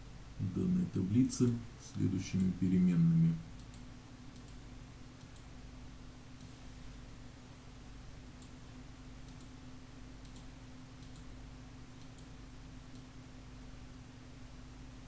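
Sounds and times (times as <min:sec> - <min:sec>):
low electrical hum: 0:00.0 - 0:15.0
faint computer mouse clicks: 0:03.6 - 0:04.6, 0:05.2 - 0:05.5, 0:08.4 - 0:08.6, 0:09.2 - 0:09.6, 0:10.2 - 0:11.3, 0:12.0 - 0:13.1.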